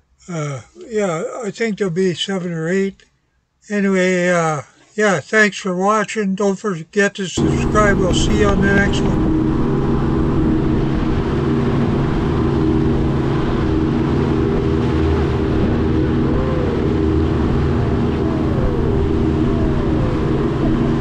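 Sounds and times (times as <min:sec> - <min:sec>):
boat engine droning: 0:07.4 - 0:21.0.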